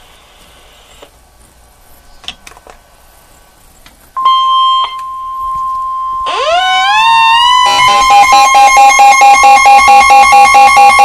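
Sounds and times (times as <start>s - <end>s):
rising pulsing siren alarm: 4.2s - 11.0s
steady radio alarm tone: 4.2s - 11.0s.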